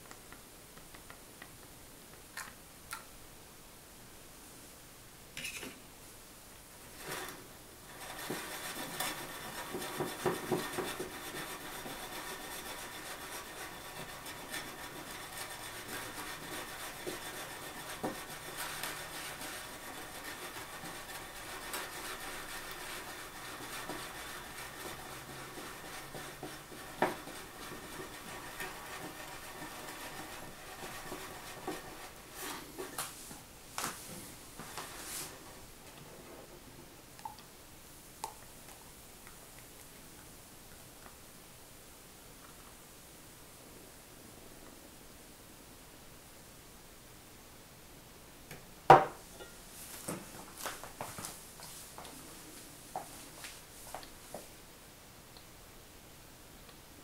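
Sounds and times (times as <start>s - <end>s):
metal jug scraping on countertop: 5.4s - 5.8s, 7.0s - 33.0s.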